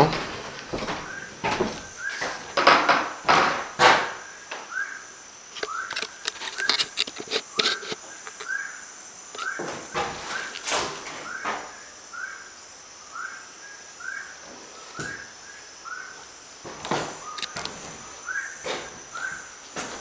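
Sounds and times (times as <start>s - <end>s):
footsteps crunching on dry ground: 0.0s - 2.6s
high insect buzz: 0.0s - 20.0s.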